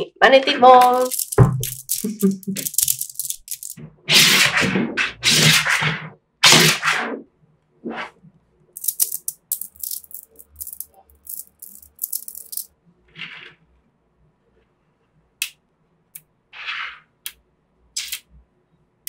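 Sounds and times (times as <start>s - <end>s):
magnetic balls clicking together: 0.7s - 3.8s, 8.8s - 12.7s
metal balls rattling in hands: 0.7s - 3.8s, 8.8s - 12.7s.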